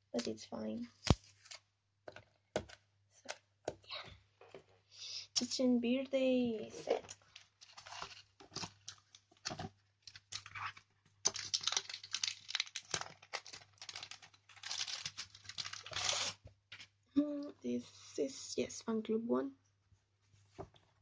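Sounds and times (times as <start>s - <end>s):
paper tearing and crinkling: 10.2s - 16.4s.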